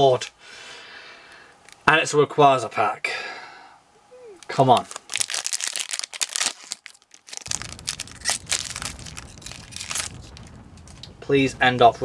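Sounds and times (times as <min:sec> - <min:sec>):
foil wrapper tearing and crinkling: 0:04.5 - 0:11.1.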